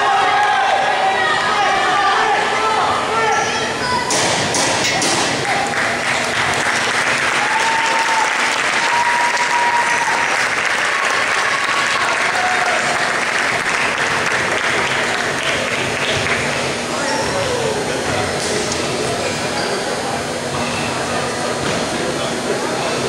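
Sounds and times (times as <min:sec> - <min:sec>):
crowd applauding: 0:05.4 - 0:16.8.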